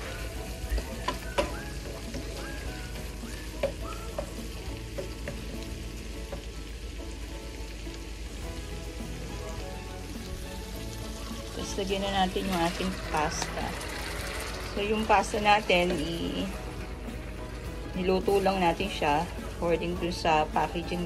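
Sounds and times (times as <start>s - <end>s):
shrimp sizzling in a frying pan: 0.0s - 21.0s
wooden spoon tapping a pan: 0.6s - 6.6s.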